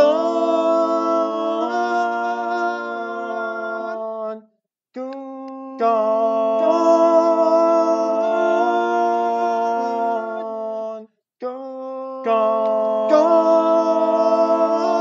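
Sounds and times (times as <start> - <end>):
voices humming chords in harmony: 0.0 - 3.6, 13.1 - 15.0.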